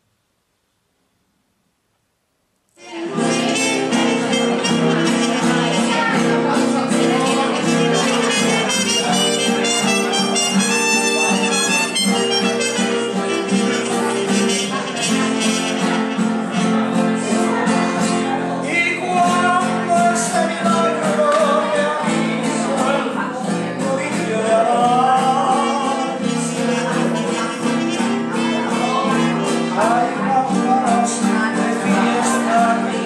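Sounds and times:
man singing: 2.8s - 16.6s, 17.2s - 33.0s
nylon-string guitar strummed: 2.8s - 33.0s
trumpet melody: 2.9s - 17.0s, 25.9s - 28.6s.

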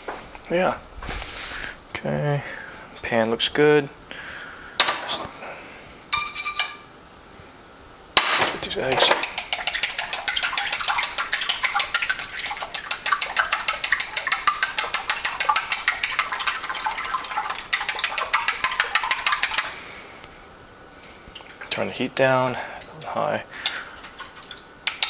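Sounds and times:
chopsticks beating eggs in bowl: 8.9s - 19.8s, 22.8s - 25.0s.

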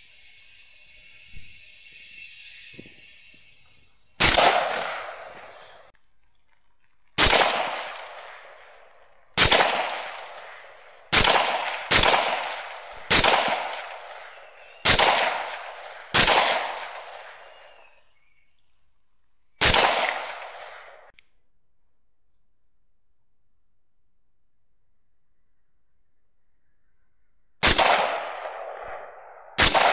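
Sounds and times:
rifle shots with echo: 4.2s - 5.9s, 7.2s - 17.8s, 19.6s - 21.1s, 27.6s - 29.9s.

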